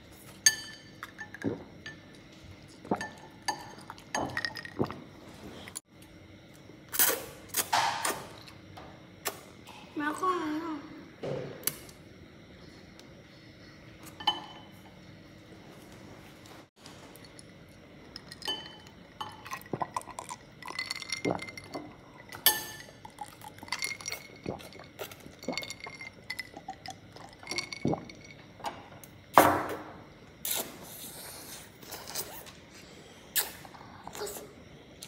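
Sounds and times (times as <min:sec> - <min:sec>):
ice clinking in a glass: 0:00.4 - 0:02.2, 0:18.1 - 0:29.6.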